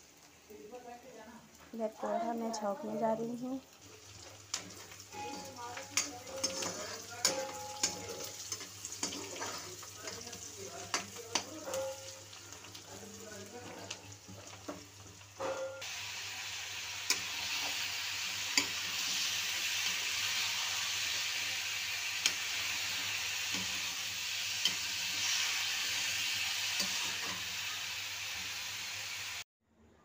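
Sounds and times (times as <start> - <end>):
vegetables sizzling in oil: 0.0 - 29.5
metal spatula knocking pan: 5.2 - 9.4, 10.9 - 12.2.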